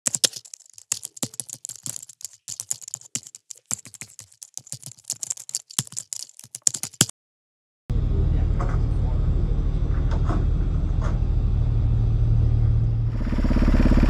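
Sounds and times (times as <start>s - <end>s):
computer keyboard typing: 0.0s - 7.1s.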